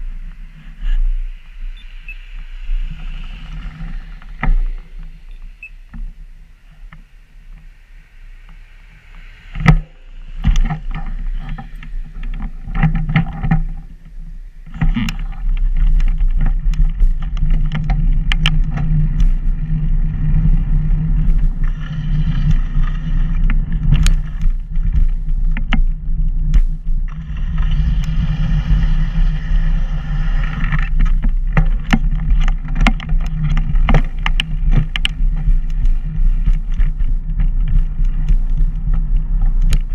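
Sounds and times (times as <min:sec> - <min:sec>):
wind buffeting: 0:00.0 - 0:39.9
rolling rumble on pavement: 0:02.3 - 0:07.7, 0:08.4 - 0:39.9
clicks and rattles from bumps: 0:09.6 - 0:13.9, 0:14.7 - 0:19.4, 0:20.4 - 0:27.7, 0:30.5 - 0:39.9.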